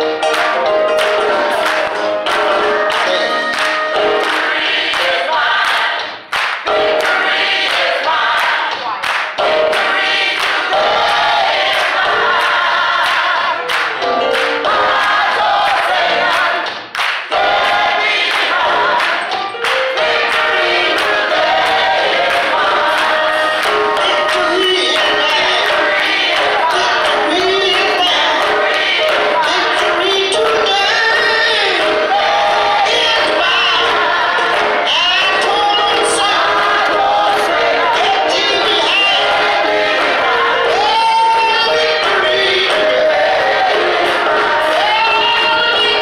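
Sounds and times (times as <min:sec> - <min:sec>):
hand-clapping on the beat: 0:00.1 - 0:46.0
choir singing: 0:00.8 - 0:46.0.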